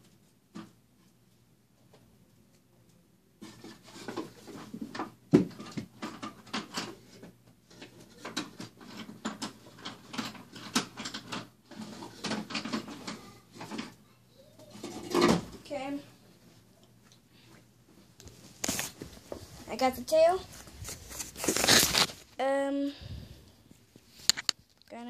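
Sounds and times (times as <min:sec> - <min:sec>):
objects rustling and clicking: 0:03.4 - 0:14.0, 0:14.6 - 0:15.7, 0:16.8 - 0:22.4, 0:23.7 - 0:25.0.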